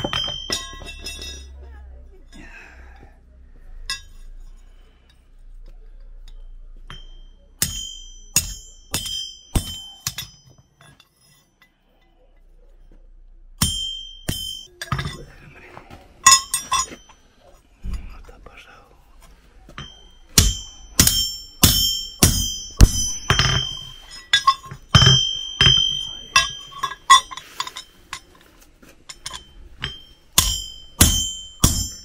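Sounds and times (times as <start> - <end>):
hammer striking steel punch on anvil: 0.0 - 1.5, 6.9 - 11.1, 13.6 - 15.2, 19.7 - 28.2, 29.1 - 32.0.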